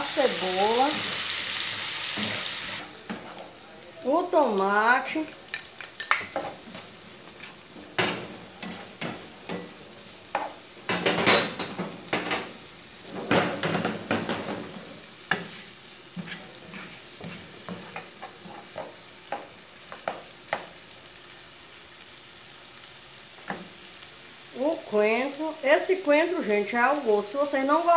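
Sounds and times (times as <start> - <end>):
food sizzling in a frying pan: 0.0 - 27.9
spatula scraping and tapping: 15.3 - 20.7.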